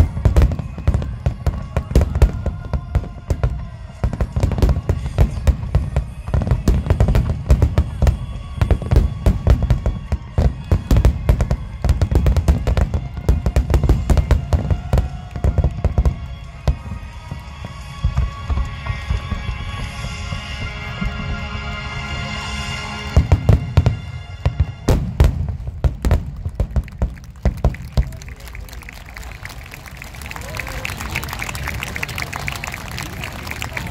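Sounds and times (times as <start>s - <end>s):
fireworks bursting: 0.0s - 33.9s.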